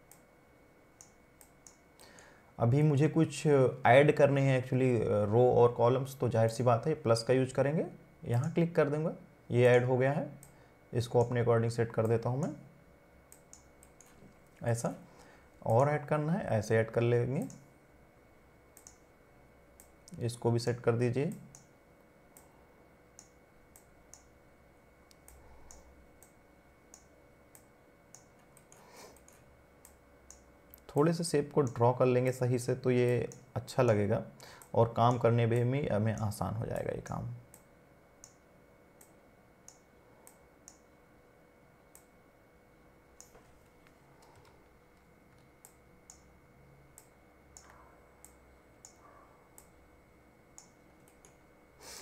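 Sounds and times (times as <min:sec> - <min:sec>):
faint electrical hum: 0:00.0 - 0:52.0
computer mouse clicks: 0:13.3 - 0:14.4, 0:18.8 - 0:19.0, 0:25.1 - 0:30.9, 0:37.5 - 0:38.4, 0:39.0 - 0:40.8, 0:46.9 - 0:49.8, 0:50.6 - 0:51.4.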